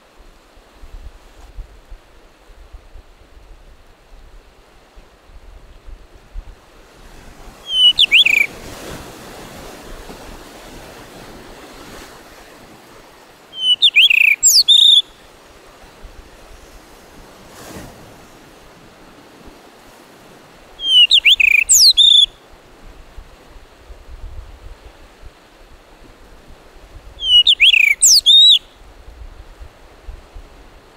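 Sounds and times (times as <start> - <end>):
surf: 0.0 - 30.9
bird whistled song: 7.6 - 8.5, 13.5 - 15.2, 20.8 - 22.4, 27.2 - 28.8.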